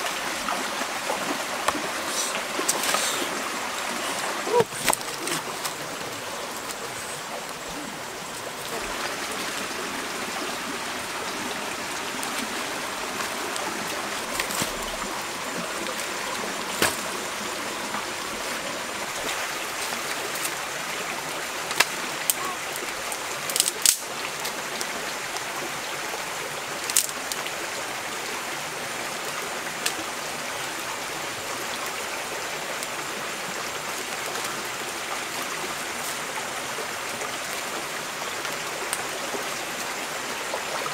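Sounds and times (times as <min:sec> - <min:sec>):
stream flowing over rocks: 0:00.0 - 0:40.9
sticks clicking and snapping: 0:23.5 - 0:24.0.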